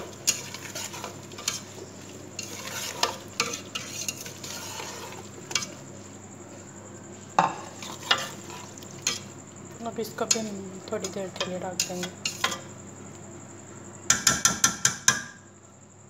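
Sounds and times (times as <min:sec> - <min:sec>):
spatula knocking and scraping pot: 0:00.0 - 0:05.8, 0:07.4 - 0:09.3, 0:10.2 - 0:12.7
food sizzling in hot oil: 0:00.0 - 0:06.1, 0:07.4 - 0:12.9.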